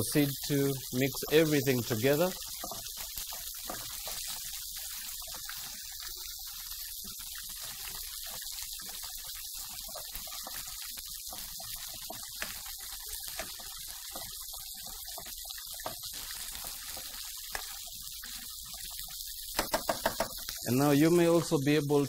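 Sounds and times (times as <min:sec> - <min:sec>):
steady hiss: 0:00.0 - 0:04.5
spoon stirring cabbage in a pot: 0:01.1 - 0:05.8, 0:07.1 - 0:20.6.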